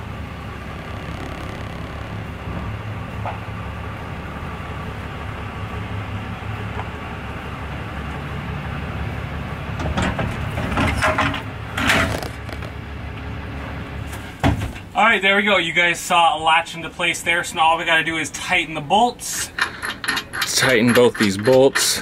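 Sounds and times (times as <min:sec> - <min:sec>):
pickup truck engine running: 0:00.0 - 0:14.1
metal hitch clanking and scraping: 0:09.8 - 0:12.6, 0:19.3 - 0:22.0.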